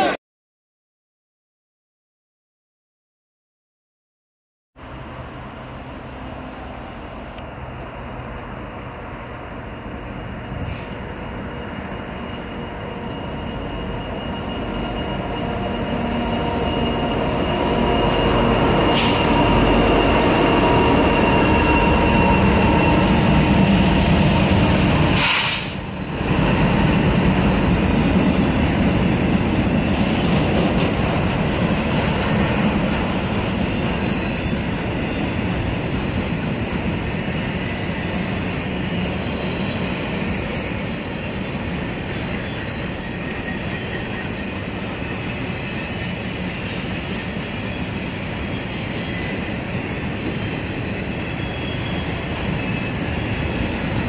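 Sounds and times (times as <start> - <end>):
train rumble: 4.8 - 54.0
wheel squeal on rails: 10.1 - 28.0, 32.8 - 54.0.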